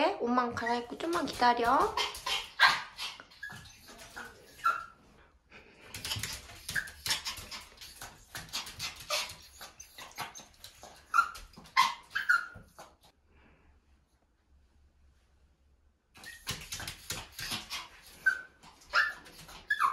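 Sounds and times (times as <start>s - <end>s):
dog whining and yipping: 2.0s - 5.0s, 6.1s - 12.9s, 16.2s - 19.9s.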